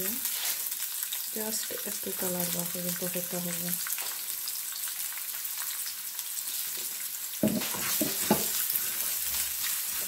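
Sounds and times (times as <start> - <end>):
onions sizzling in oil: 0.0 - 10.0
wooden spatula scraping pan: 7.4 - 10.0.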